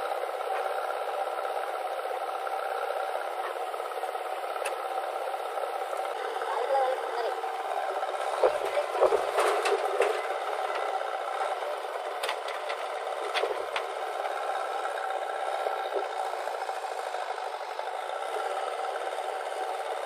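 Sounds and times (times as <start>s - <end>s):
diesel engines running: 0.0s - 20.0s
backhoe bucket clanking: 8.2s - 11.5s.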